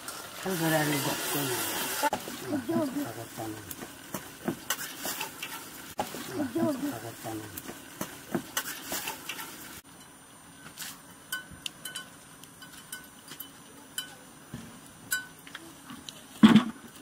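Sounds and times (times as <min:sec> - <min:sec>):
wood fire crackling: 0:00.0 - 0:09.9.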